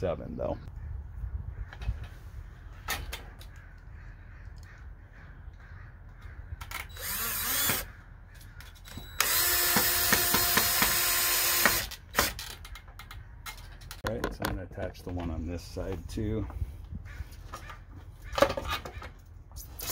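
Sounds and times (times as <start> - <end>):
cordless drill driving screw: 6.7 - 7.9, 8.9 - 12.6.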